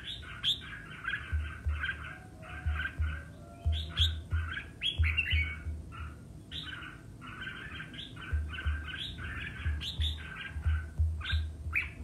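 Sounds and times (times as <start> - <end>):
bird singing chattering phrases: 0.0 - 12.0
dull low thuds: 1.0 - 6.2, 8.2 - 12.0.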